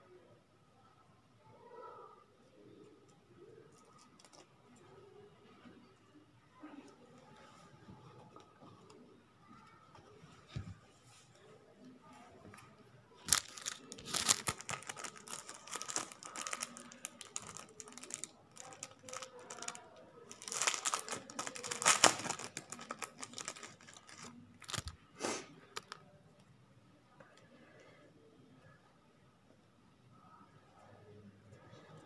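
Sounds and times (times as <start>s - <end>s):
crinkling and rustling: 3.7s - 5.8s, 12.4s - 25.0s, 25.7s - 26.1s.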